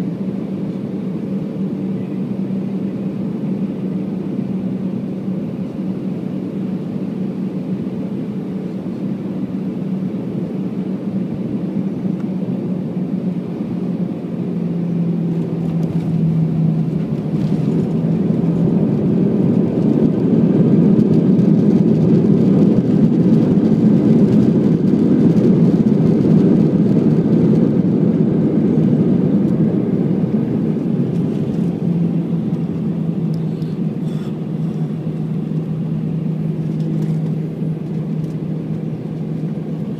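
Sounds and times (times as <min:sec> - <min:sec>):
jet engines in cabin: 0:00.0 - 0:39.9
reverse thrust roar: 0:12.8 - 0:39.9.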